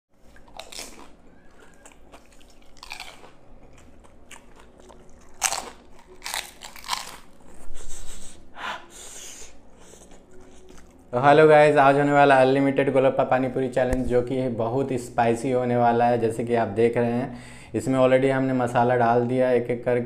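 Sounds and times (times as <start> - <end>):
crunchy food being chewed: 0.2 - 8.3, 9.8 - 11.2.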